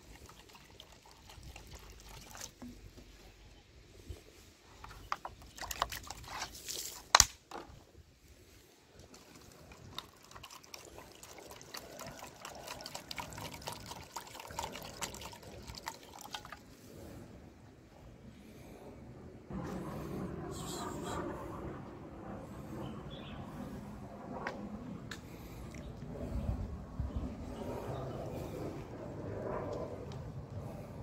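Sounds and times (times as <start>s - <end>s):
water pouring into a bowl: 0.0s - 2.6s, 9.1s - 16.7s.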